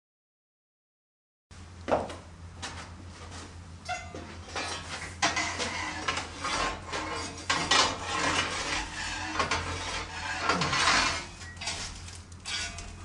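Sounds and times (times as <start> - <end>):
metal poker scraping brick floor: 4.1 - 13.0.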